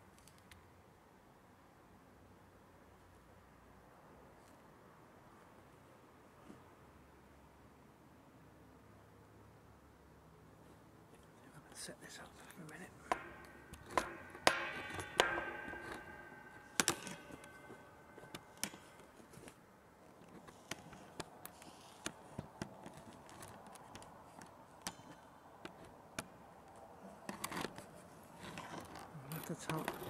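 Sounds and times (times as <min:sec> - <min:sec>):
camera handling clicks and knocks: 0:13.1 - 0:19.6.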